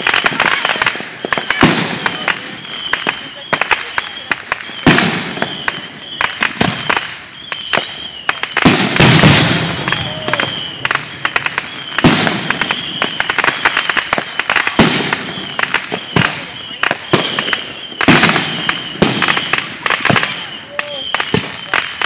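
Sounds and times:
fireworks bangs and crackles: 0.0s - 22.0s
heavy fireworks booms: 0.0s - 22.0s.

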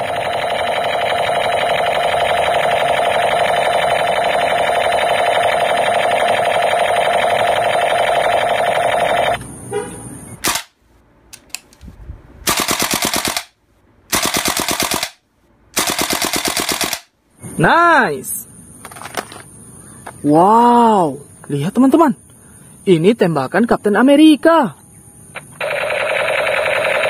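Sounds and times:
toy machine gun sound effect: 0.0s - 9.4s, 12.5s - 13.5s, 25.6s - 27.0s.

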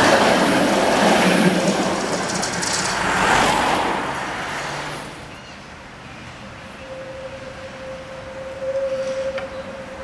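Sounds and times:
tram wheels rattling on rails: 0.0s - 5.4s.

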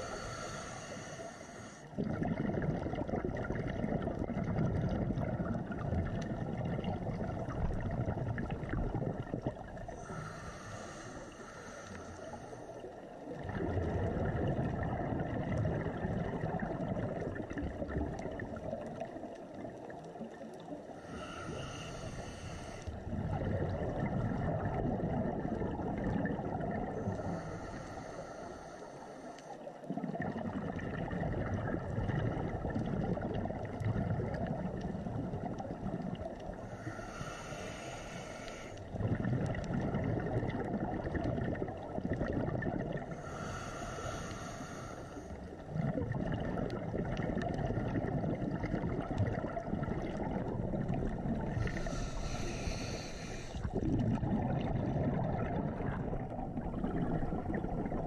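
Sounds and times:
hissing regulator inhalations: 0.0s - 2.0s, 9.9s - 12.9s, 20.9s - 23.0s, 27.0s - 29.7s, 36.5s - 39.0s, 43.1s - 45.6s, 51.5s - 53.8s
bubbling exhalations underwater: 1.9s - 11.0s, 13.2s - 22.2s, 22.9s - 27.5s, 29.9s - 37.8s, 38.8s - 58.0s.

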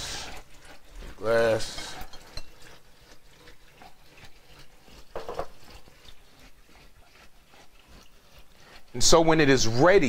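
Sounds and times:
glass clinking: 1.7s - 2.7s, 5.1s - 5.6s.

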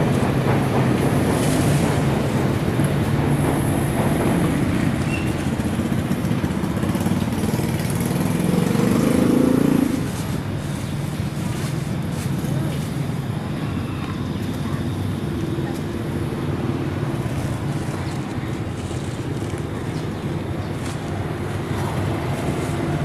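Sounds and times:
motorbike engines running: 0.0s - 23.0s
street traffic: 0.0s - 23.0s.

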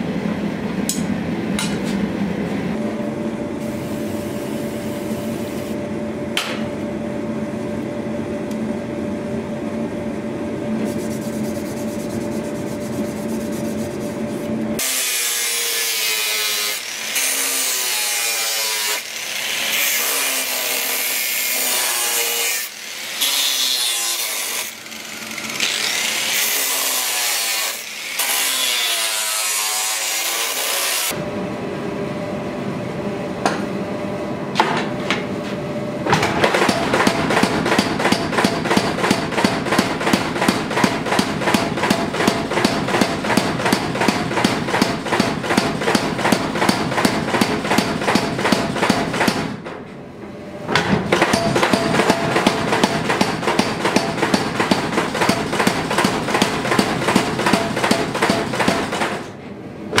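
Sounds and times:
angle grinder cutting metal: 14.8s - 31.1s
power hammer blows on metal: 51.1s - 59.1s.

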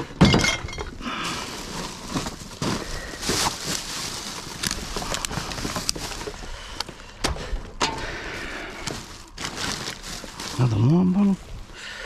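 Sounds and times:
bottles knocking and clinking: 0.0s - 1.0s
rubbish rustling: 0.0s - 11.8s.

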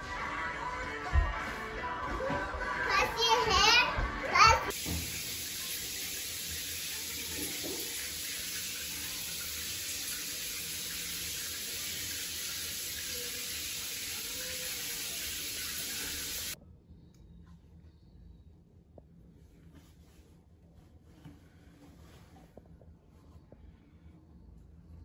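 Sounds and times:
running water hissing: 4.7s - 16.6s.

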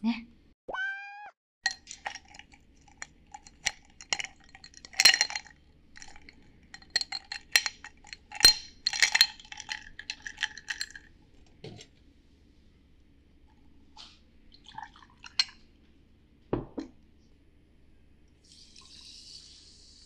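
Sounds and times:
ice cubes clinking in a glass: 1.7s - 11.1s, 15.2s - 15.6s.

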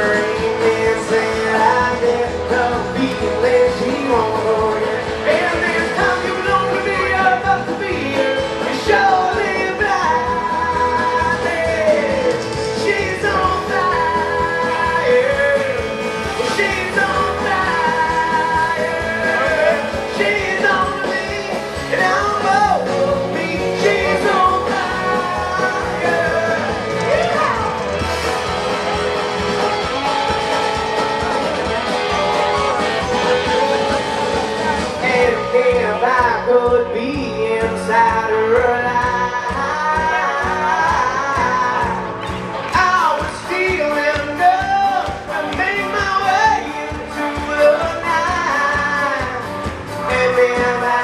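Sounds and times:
live rock band with singer: 0.0s - 51.0s.

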